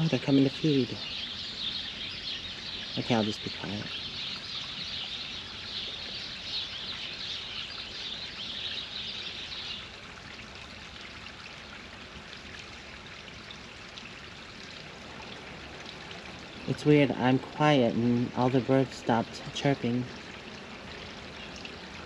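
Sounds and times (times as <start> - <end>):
small birds chirping: 0.0 - 10.0
water feature trickling: 0.0 - 22.0.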